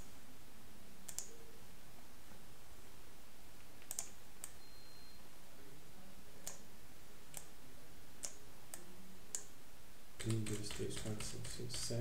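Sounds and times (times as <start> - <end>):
computer mouse clicking: 1.0 - 1.3, 3.8 - 4.6, 6.4 - 6.7, 7.3 - 7.5, 8.2 - 9.5, 10.2 - 12.0.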